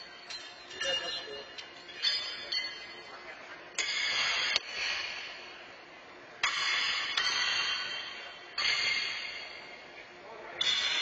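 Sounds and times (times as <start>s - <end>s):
horseshoes clanging on steel stakes: 6.4s - 9.7s, 10.6s - 11.0s.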